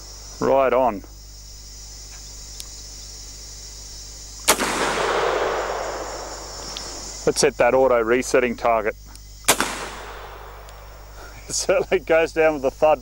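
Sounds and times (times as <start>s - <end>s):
rifle shot with rolling echo: 4.4s - 7.4s, 9.5s - 11.2s.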